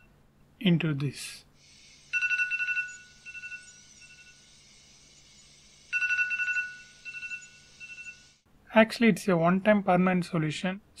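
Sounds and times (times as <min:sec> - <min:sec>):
phone alarm beeps: 0:02.1 - 0:04.4, 0:05.9 - 0:08.3.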